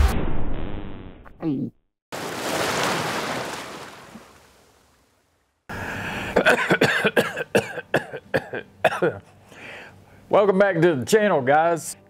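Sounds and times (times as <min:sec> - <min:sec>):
surf washing up on beach: 0:02.2 - 0:04.8
man coughing and clearing throat: 0:06.3 - 0:09.3.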